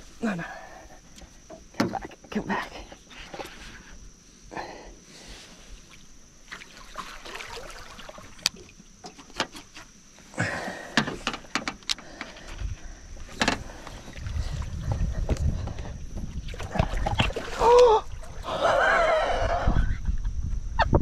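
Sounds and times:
water splashing: 6.4s - 9.2s, 16.4s - 18.6s
net and rod knocking against boat: 13.3s - 13.7s.

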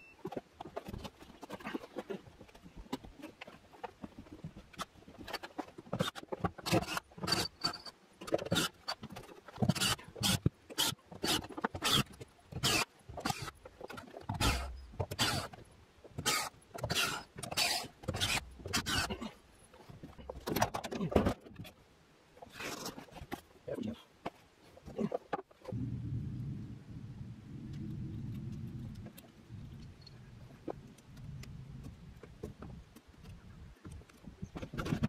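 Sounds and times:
heavy low thumps: 25.7s - 32.2s
knocks scrapes and thumps: 27.4s - 35.0s.

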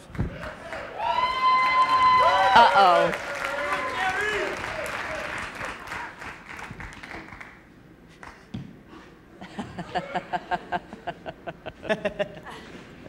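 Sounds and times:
audience applause: 0.0s - 7.6s
bursts of laughter: 9.4s - 12.7s.

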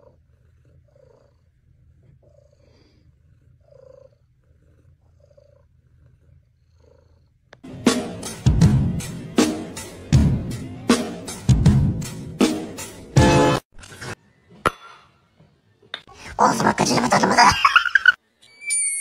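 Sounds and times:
cat purring: 0.0s - 7.6s
loud music with drum beat: 7.6s - 13.6s.

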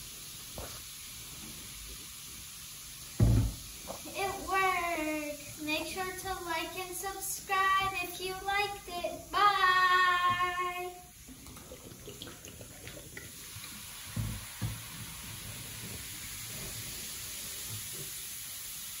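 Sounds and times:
foam fizzing: 0.0s - 19.0s
child's voice: 4.0s - 11.1s.

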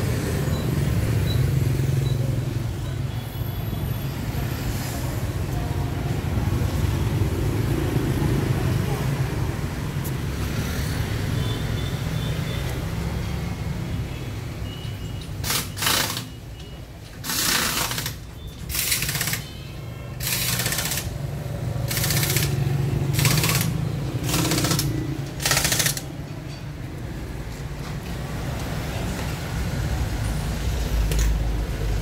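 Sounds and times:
rapid rattling machine bursts: 15.4s - 16.3s, 17.2s - 19.6s, 20.2s - 21.2s, 21.8s - 26.1s.

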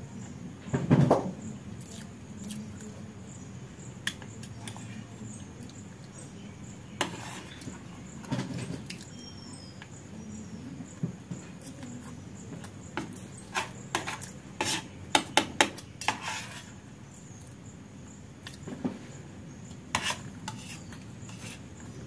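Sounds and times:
soft chewing: 1.8s - 3.1s, 4.0s - 10.0s, 18.4s - 18.7s
metal spoon scraping ceramic plate: 7.0s - 7.8s, 13.4s - 15.0s, 16.0s - 16.8s, 19.9s - 21.7s.

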